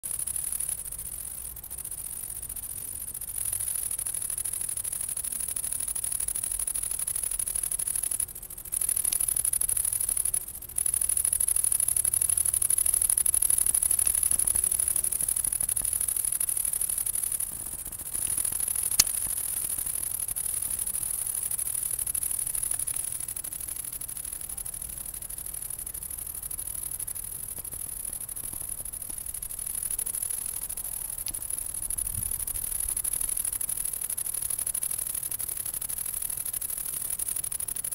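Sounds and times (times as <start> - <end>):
high-pitched hiss: 0.1 - 37.9
sharp click: 18.2 - 19.6.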